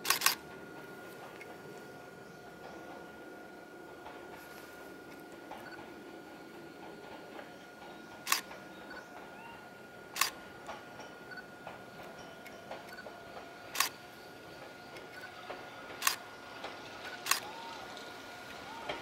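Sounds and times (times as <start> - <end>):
sharp ringing clicks: 0.0 - 0.4, 7.8 - 9.3, 10.1 - 16.3
faint high hum: 0.0 - 19.0
low ambient noise: 0.0 - 19.0.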